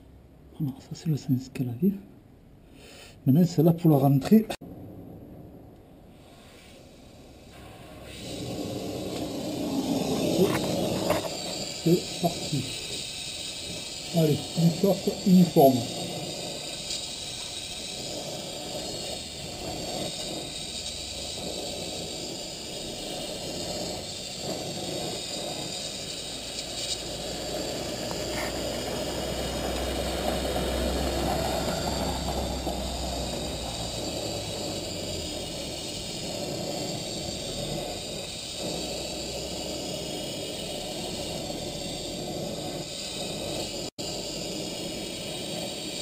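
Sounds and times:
gas torch hissing flame: 0:05.5 - 0:46.0.

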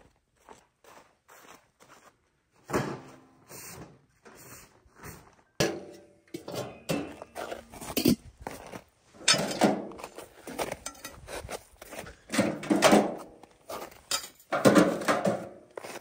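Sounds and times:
objects knocking and clunking: 0:05.6 - 0:08.3, 0:09.2 - 0:11.5, 0:12.1 - 0:16.0.

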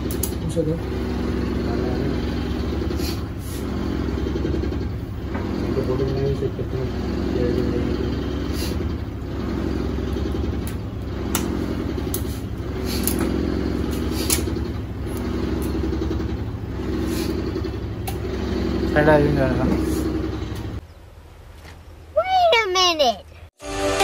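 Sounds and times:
traffic engines humming: 0:00.0 - 0:21.4.

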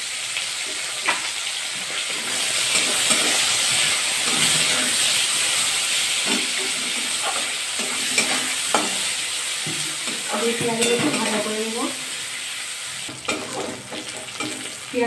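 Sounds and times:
onions sizzling in hot oil: 0:00.0 - 0:15.0
spatula scraping a metal pan: 0:02.0 - 0:11.6, 0:13.1 - 0:14.8.

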